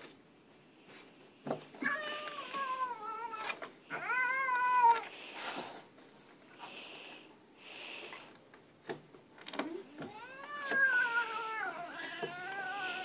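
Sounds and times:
cat yowling: 1.8 - 5.0, 10.0 - 13.0
cat hissing: 10.1 - 13.0.

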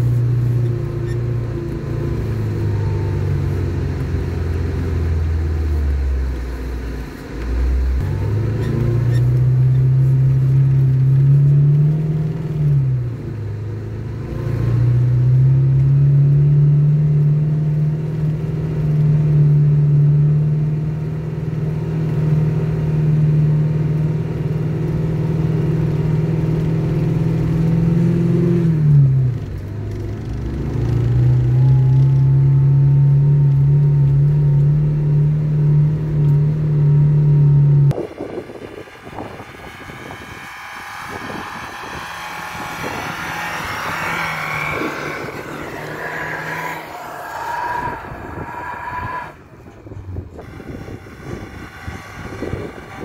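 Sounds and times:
rising whine: 0.0 - 17.4, 29.6 - 53.0
car engine driving: 0.0 - 53.0.

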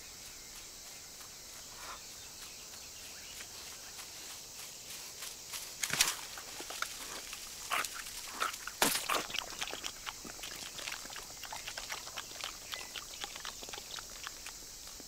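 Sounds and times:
cartoon chewing clicks and crunches: 6.6 - 15.0.

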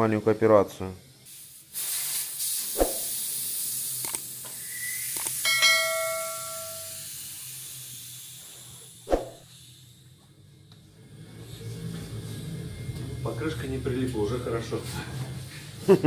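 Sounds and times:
air hissing out of tyre: 1.2 - 5.4, 6.5 - 10.1
metal ringing: 5.5 - 7.0.

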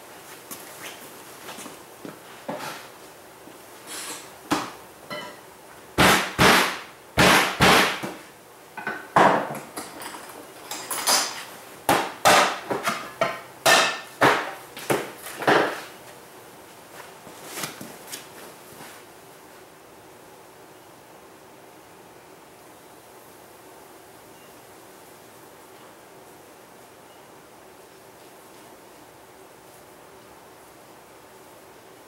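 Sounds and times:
sharp knocks and bangs: 6.0 - 8.2.

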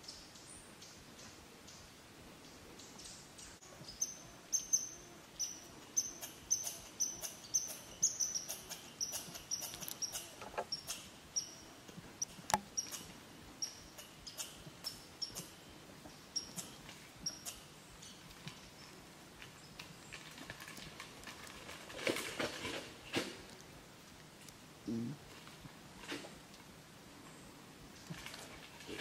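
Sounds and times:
small animal chirping: 3.9 - 11.6, 12.2 - 15.6, 16.4 - 17.6.

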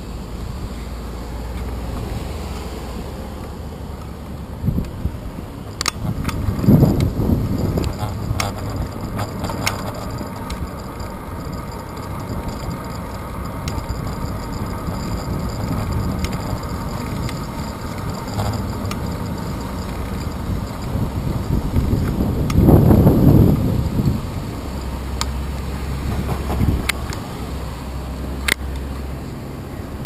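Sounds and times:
bicycle tyres on road: 0.0 - 30.0
wind rumble: 4.4 - 28.4
faint ticks from bumps: 5.8 - 22.8.

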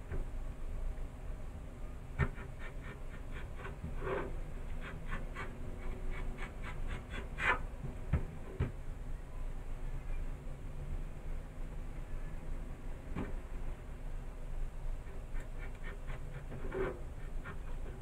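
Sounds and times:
knife scratching along beans: 15.2 - 18.0.

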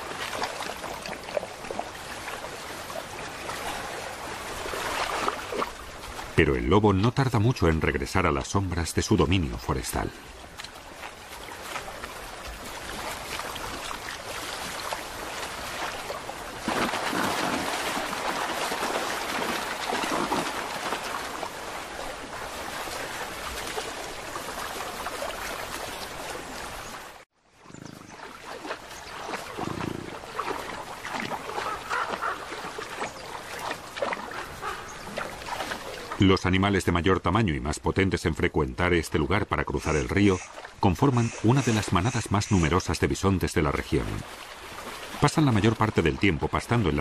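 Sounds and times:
small water splashes: 0.0 - 6.6, 7.5 - 36.6, 38.9 - 47.0
river rushing over stones: 9.4 - 27.2.

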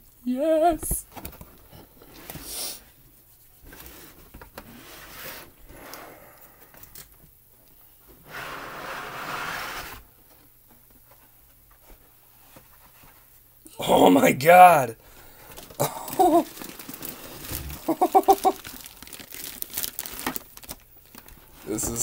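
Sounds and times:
cardboard rubbing and scraping: 3.6 - 5.6, 8.3 - 10.0.

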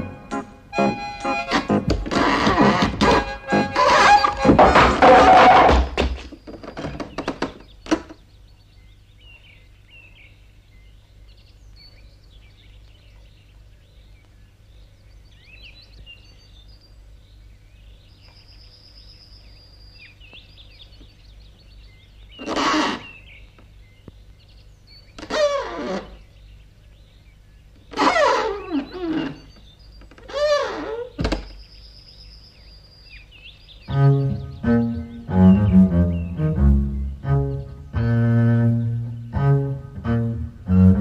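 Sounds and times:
birds chirping: 0.0 - 41.0
falling boards clattering: 1.7 - 8.2.

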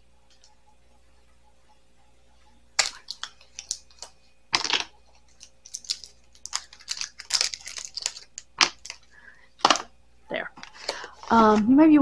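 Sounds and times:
batteries clicking and clattering: 2.8 - 9.9
batteries rattling: 2.8 - 9.9.

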